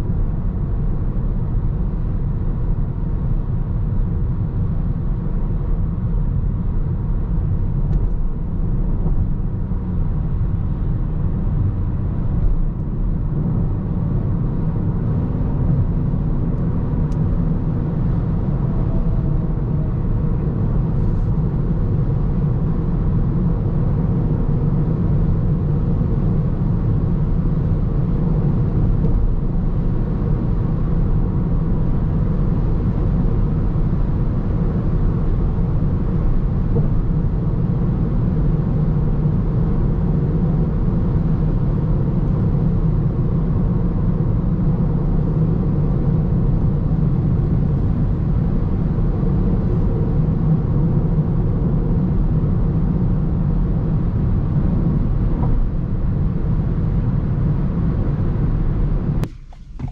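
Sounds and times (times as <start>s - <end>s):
car cabin road drone: 0.0s - 59.9s.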